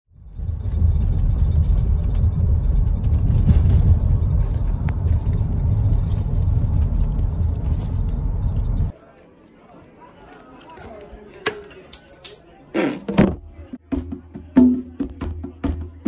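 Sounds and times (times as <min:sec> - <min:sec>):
car cabin rumble: 0:00.7 - 0:08.9.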